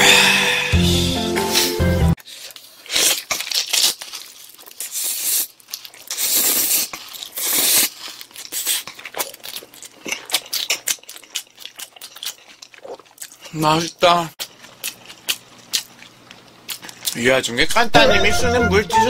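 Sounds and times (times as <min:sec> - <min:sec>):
wet chewing and lip smacking: 0:02.4 - 0:13.6, 0:14.4 - 0:17.2
person slurping noodles: 0:04.8 - 0:09.3.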